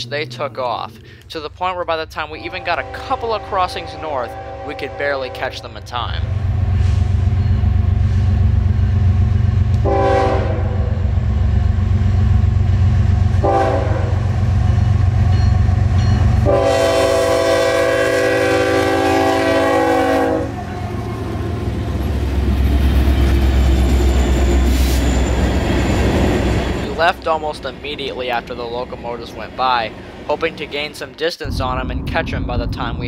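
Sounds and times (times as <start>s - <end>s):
diesel locomotives passing: 0.0s - 33.0s
train horn blasts: 2.4s - 5.7s, 9.7s - 11.1s, 13.3s - 14.3s, 16.3s - 21.3s.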